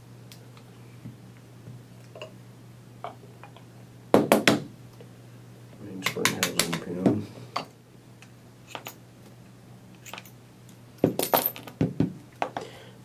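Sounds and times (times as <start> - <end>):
metal parts clinking: 11.0 - 11.8.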